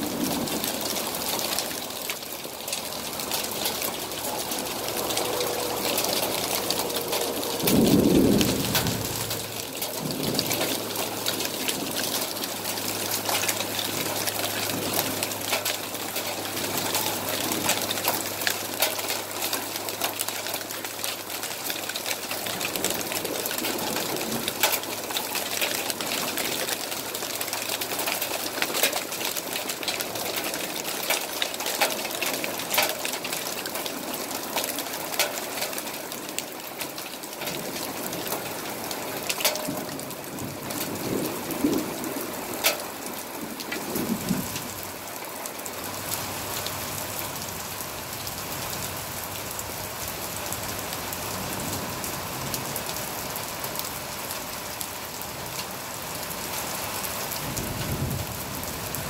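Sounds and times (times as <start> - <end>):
heavy rain pouring on deck: 0.0 - 59.0
raindrops ticking close by: 0.0 - 59.0
low thunder rumble: 4.8 - 12.0, 57.4 - 59.0.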